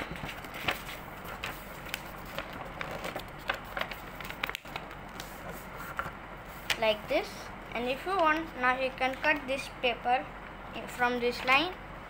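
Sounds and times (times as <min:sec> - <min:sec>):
paper rustling and crinkling: 0:00.0 - 0:06.8.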